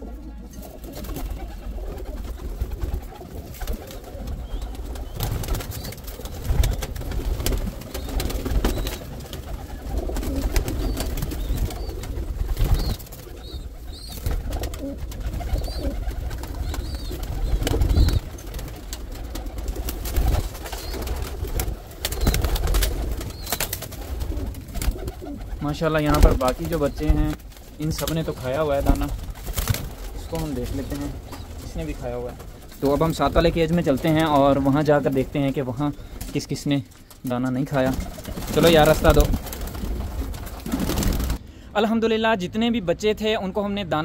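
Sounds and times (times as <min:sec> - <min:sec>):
pigeons cooing: 0:00.0 - 0:41.5.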